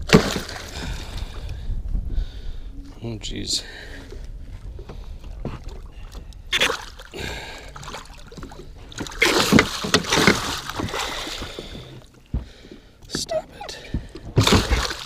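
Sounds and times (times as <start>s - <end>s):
fish thrashing and splashing water: 0.0s - 1.5s, 4.1s - 12.8s, 13.8s - 15.0s.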